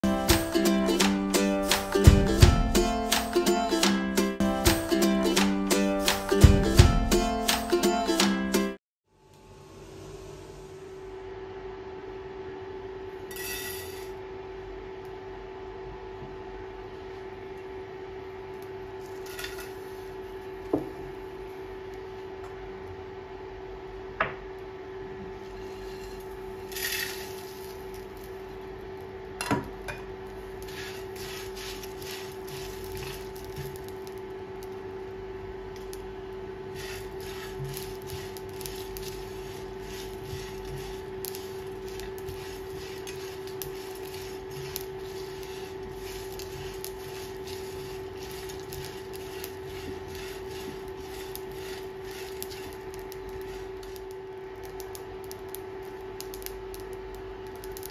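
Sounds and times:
steady hum: 9.1s - 57.9s
spatula scraping a pan: 25.4s - 27.4s, 30.6s - 33.7s, 36.7s - 53.9s
seeds clicking against a pan: 26.7s - 28.4s, 30.6s - 34.7s, 36.8s - 57.9s.

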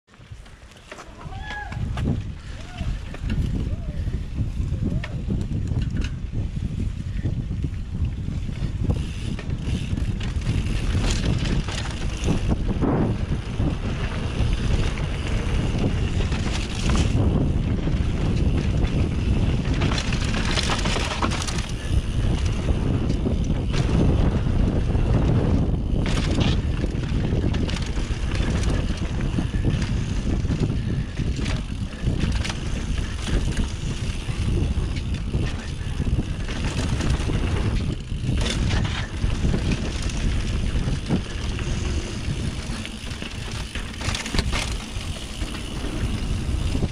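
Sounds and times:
bike rattling: 0.1s - 46.9s
wind rushing on microphone: 1.1s - 46.9s
tyres rolling over dirt: 9.4s - 46.9s.

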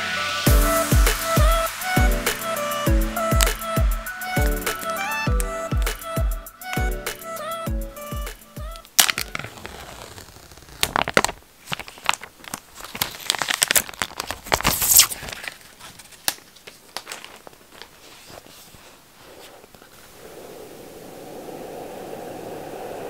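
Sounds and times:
plastic wrapping tearing: 8.8s - 18.8s.

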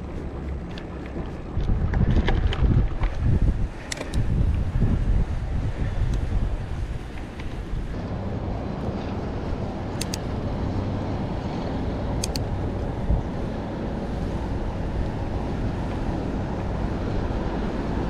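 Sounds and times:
low rumble of bike riding: 0.0s - 18.0s
wind buffeting on microphone: 0.0s - 18.0s
quick double clicks: 9.9s - 10.3s, 12.2s - 12.5s.

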